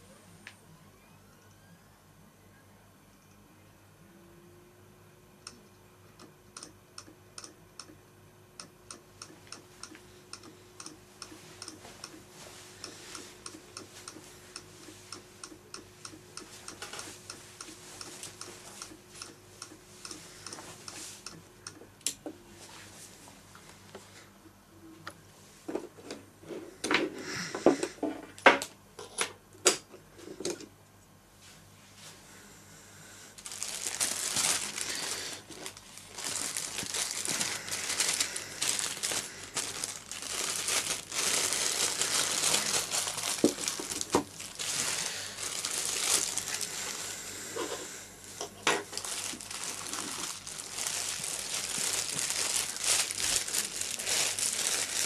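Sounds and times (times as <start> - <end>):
plastic bag crinkling: 33.4 - 47.2, 48.8 - 55.0.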